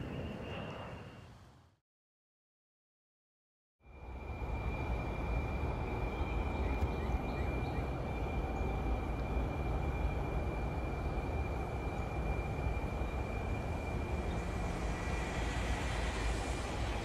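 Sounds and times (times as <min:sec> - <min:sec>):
thin high whine: 0:03.8 - 0:17.0
vehicle rumbling in motion: 0:11.8 - 0:17.0.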